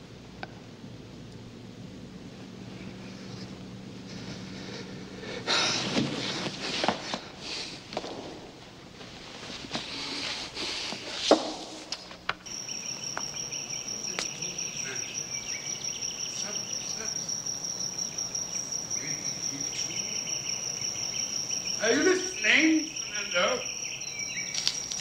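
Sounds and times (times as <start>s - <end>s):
insects trilling: 0.0s - 25.0s.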